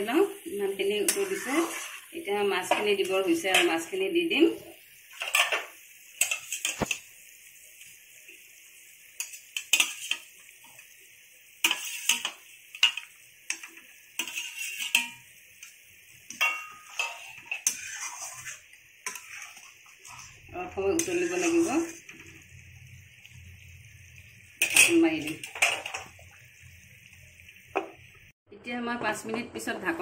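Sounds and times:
metal spatula scraping metal pan: 1.1 - 2.1, 5.2 - 7.0, 9.2 - 10.3, 11.6 - 15.3, 16.3 - 22.2, 24.6 - 26.0.

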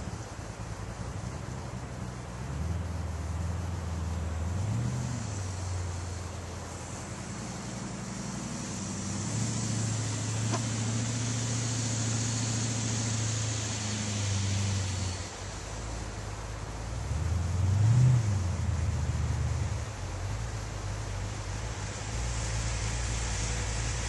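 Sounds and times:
buggy engine running: 0.0 - 24.0.

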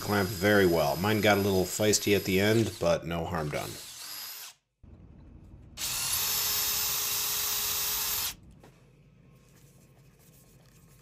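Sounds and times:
cordless drill boring into wood: 0.0 - 4.6, 5.8 - 8.4.

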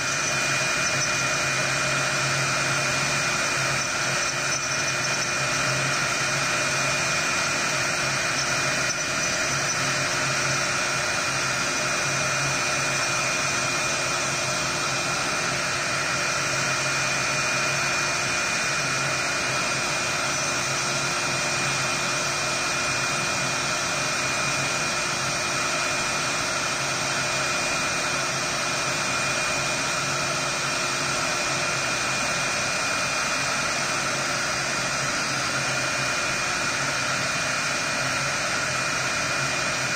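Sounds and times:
bit cutting wood hiss: 0.0 - 18.0
router spindle whine: 0.0 - 39.9.

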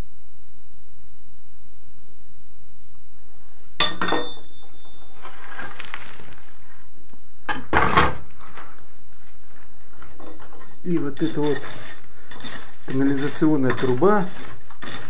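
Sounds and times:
rubble scraping and rustling: 4.6 - 6.8, 7.7 - 15.0.

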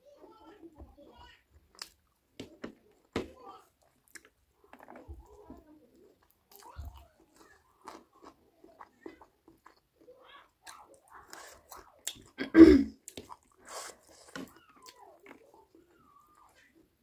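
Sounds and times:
person chewing food: 1.5 - 17.0.

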